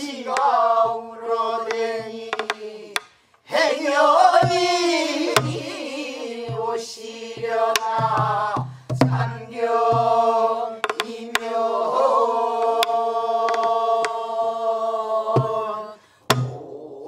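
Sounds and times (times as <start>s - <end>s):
group singing folk song: 0.0s - 17.0s
barrel drum strokes and thumps: 7.4s - 10.2s.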